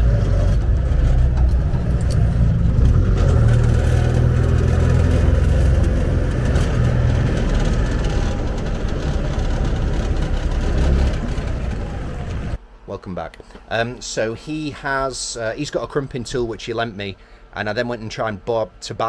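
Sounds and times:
car engine rumbling: 0.0 - 12.6.

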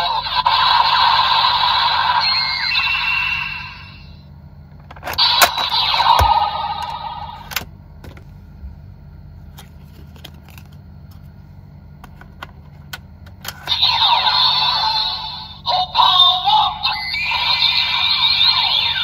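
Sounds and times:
toy electronic sound effects: 0.0 - 4.3, 5.1 - 7.5, 13.6 - 19.0
sweeping electronic tones: 1.9 - 4.2.

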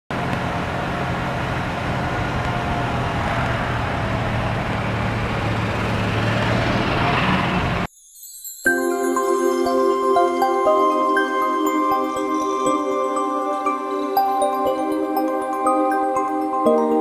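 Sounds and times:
golf cart motor hum: 0.1 - 7.9
tyre and road noise: 0.1 - 7.9.

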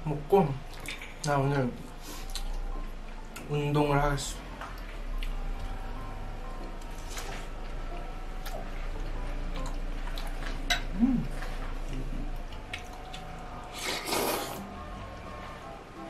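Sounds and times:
chewing mouth smacks: 0.7 - 1.2
person humming: 10.8 - 12.4
noodle slurp: 13.7 - 14.7.

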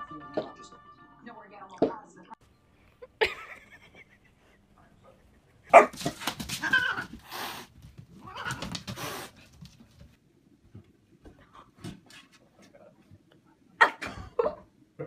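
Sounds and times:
dog barking: 5.7 - 6.2.

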